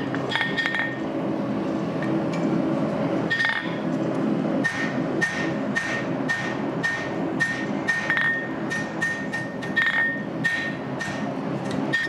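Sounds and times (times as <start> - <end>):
hammer striking steel on anvil: 4.6 - 11.3.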